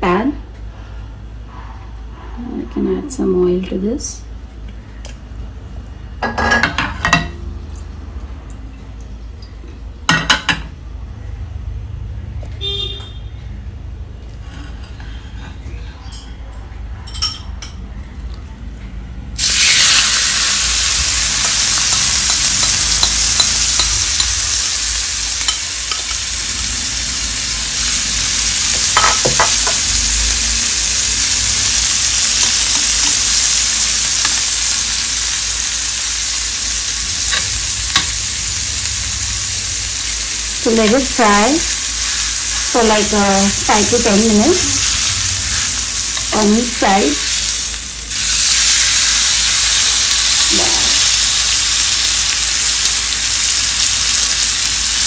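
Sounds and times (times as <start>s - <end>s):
chicken sizzling in a pan: 19.4s - 55.0s.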